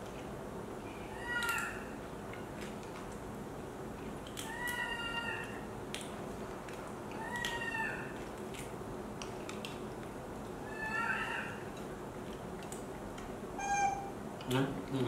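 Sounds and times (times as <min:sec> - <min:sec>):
baby macaque calls: 0:01.0 - 0:02.0, 0:10.6 - 0:11.6, 0:13.6 - 0:14.1.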